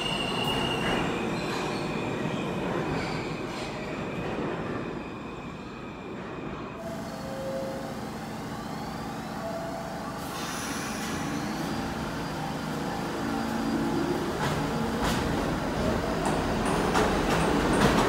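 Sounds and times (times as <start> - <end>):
subway train rumbling: 0.0 - 18.0
wheel-on-rail hiss: 10.2 - 11.7.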